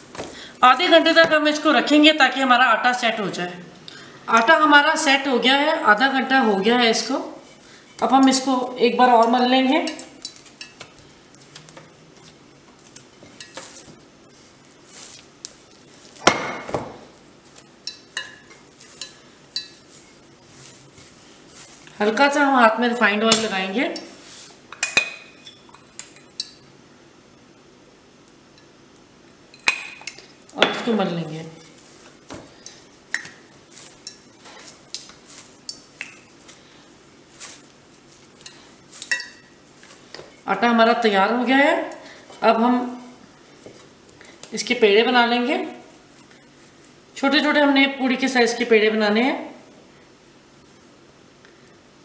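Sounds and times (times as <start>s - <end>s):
oil sizzling: 31.6s - 40.4s.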